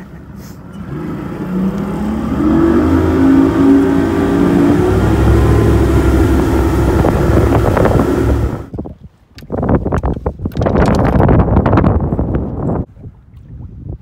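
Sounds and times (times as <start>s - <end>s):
outboard motor accelerating: 0.0s - 8.8s.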